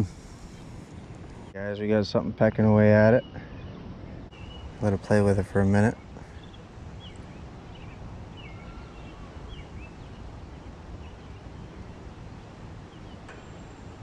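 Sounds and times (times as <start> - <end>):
wind rumble on microphone: 3.3 - 14.0.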